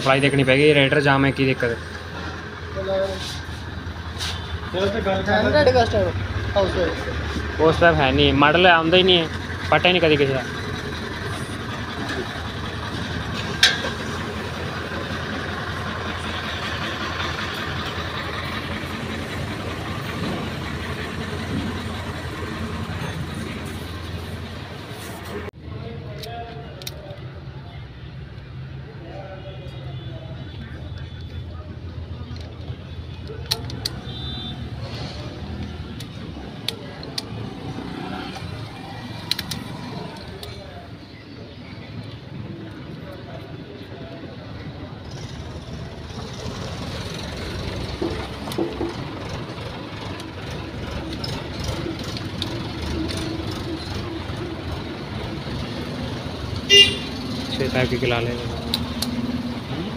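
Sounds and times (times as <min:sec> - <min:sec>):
engine idling: 0:01.1 - 0:25.5, 0:44.4 - 0:59.9.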